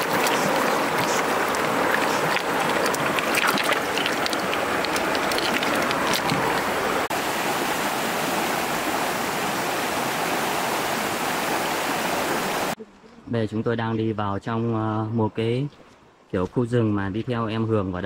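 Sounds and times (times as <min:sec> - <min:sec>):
hands splashing in water: 0:00.0 - 0:07.1
stream rushing over rocks: 0:00.0 - 0:12.8.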